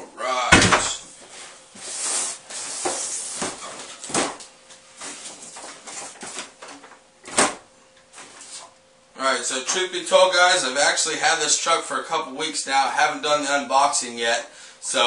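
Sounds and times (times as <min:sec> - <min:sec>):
cardboard rustling and scraping: 0:01.2 - 0:04.4, 0:05.0 - 0:07.0.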